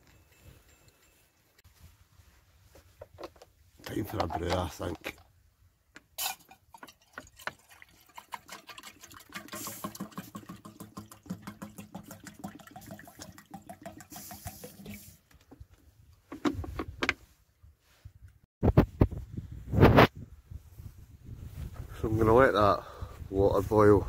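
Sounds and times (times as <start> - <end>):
water glugging into metal mug: 6.2 - 15.2.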